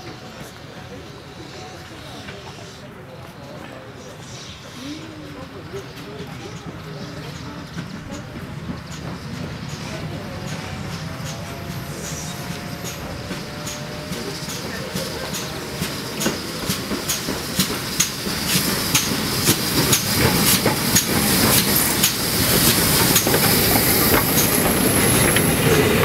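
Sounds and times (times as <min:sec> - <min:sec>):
train wheels clacking over rail joints: 0:05.9 - 0:26.0.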